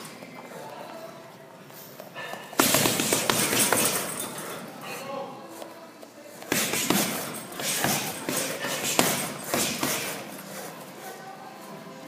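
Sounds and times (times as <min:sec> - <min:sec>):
punches thudding on heavy bag: 0:02.6 - 0:04.3, 0:06.5 - 0:10.3.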